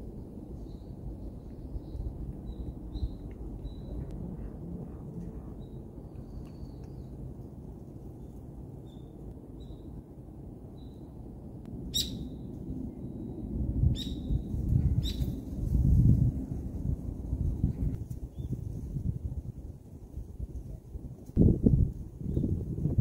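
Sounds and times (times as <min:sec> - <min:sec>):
low rumble: 0:09.3 - 0:19.8
small birds chirping: 0:14.0 - 0:15.4.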